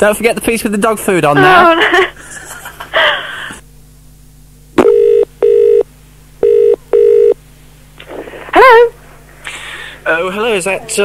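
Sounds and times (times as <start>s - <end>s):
telephone ringing tone: 4.8s - 5.8s, 6.4s - 7.4s.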